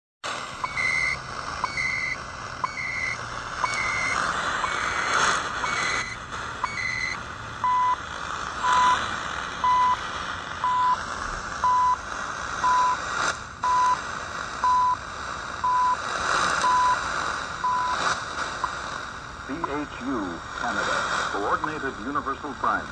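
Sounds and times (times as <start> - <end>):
shortwave hiss and static: 0.2 - 22.9
short time signal ticks: 0.6 - 5.0, 13.6 - 14.0
steady time signal beep: 0.6 - 8.0, 8.6 - 9.0, 9.6 - 10.0, 10.6 - 11.0, 11.6 - 12.0, 12.6 - 13.0, 13.6 - 14.0, 14.6 - 15.0, 15.6 - 16.0, 16.6 - 18.8, 21.4 - 22.1
warbling data tones: 0.6 - 8.0, 21.3 - 22.0.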